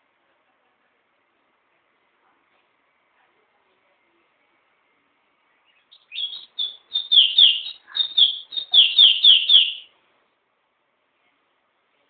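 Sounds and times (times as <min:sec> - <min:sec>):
songbird singing: 0:05.4 - 0:10.0.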